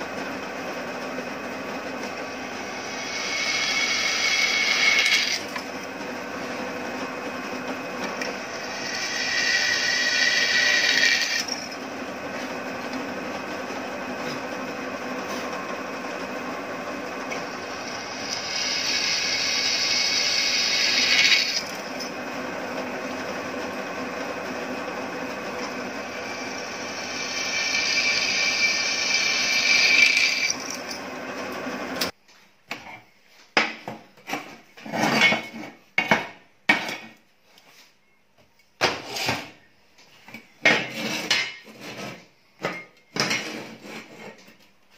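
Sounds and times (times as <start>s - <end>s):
drill press drilling steel: 0.0s - 32.1s.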